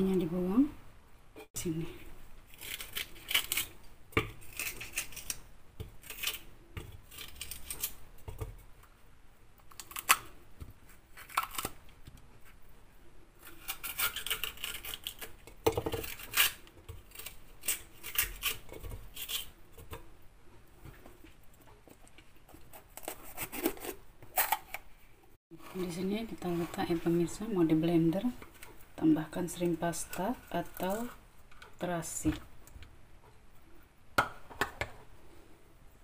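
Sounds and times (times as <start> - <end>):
bell pepper tearing by hand: 2.5 - 8.0, 11.1 - 11.9, 13.4 - 19.6.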